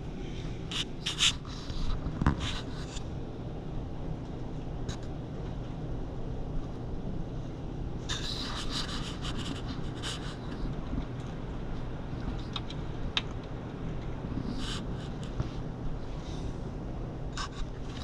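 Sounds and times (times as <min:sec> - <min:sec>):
raccoons rustling and crackling: 0:08.1 - 0:16.4.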